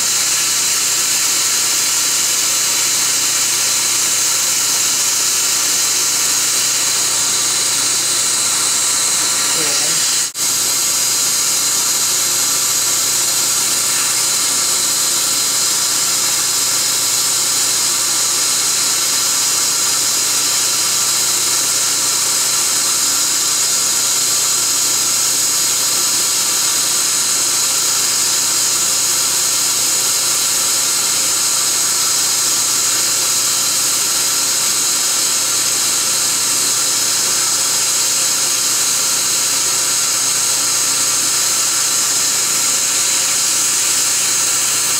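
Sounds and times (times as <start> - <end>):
dental equipment hiss: 0.0 - 18.1, 41.0 - 44.9.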